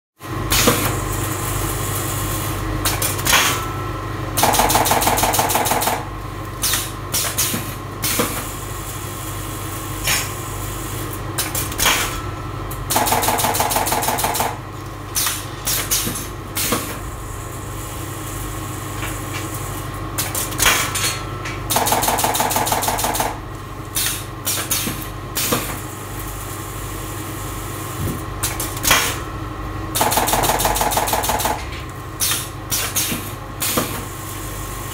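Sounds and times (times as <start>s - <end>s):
pneumatic clacks: 6.6s - 8.5s, 11.4s - 17.2s, 18.9s - 25.8s, 30.0s - 34.1s
machine motor hum: 8.8s - 20.6s.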